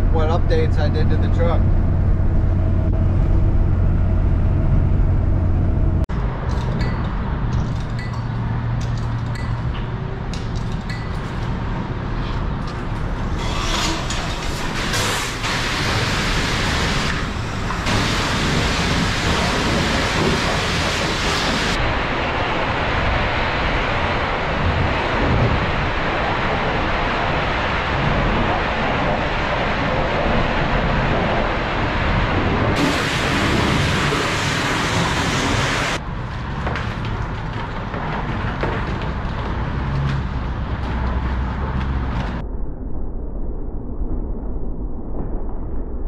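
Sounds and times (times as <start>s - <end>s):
low hum of wash bay: 8.8s - 42.4s
pressure washer spraying water: 14.8s - 21.8s, 32.8s - 36.0s.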